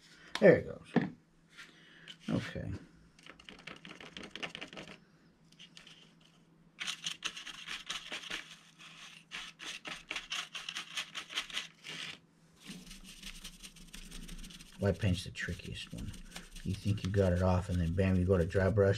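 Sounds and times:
paintbrush scratching on foam: 7.4s - 18.9s.

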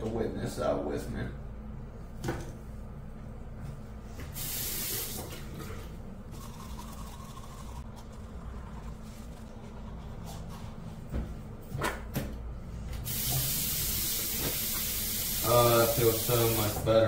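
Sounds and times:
tap water running into sink: 13.1s - 16.8s.

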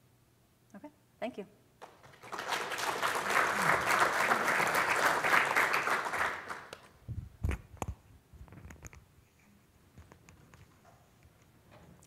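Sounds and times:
audience clapping: 1.8s - 7.0s.

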